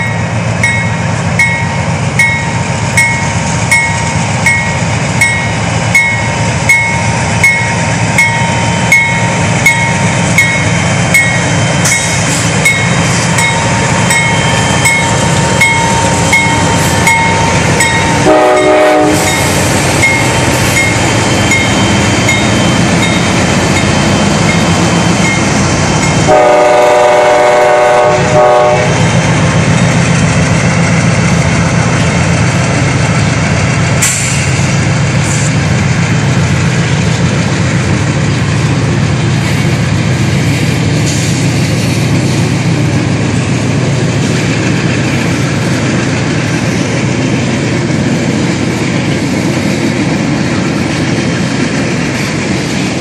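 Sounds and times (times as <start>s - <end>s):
diesel locomotive rumble: 0.0s - 53.0s
locomotive horn: 18.1s - 19.5s, 26.2s - 29.1s.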